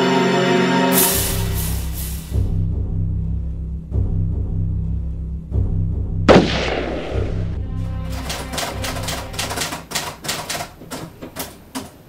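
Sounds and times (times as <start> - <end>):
dramatic soundtrack low drone: 0.0 - 9.8
loud ringing bang: 6.3 - 7.6
rapid uneven clicks: 8.0 - 12.0.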